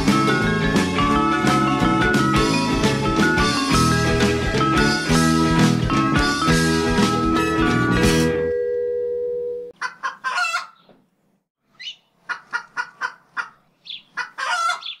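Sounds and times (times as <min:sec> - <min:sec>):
chicken clucking: 0:09.8 - 0:10.9, 0:11.8 - 0:15.0.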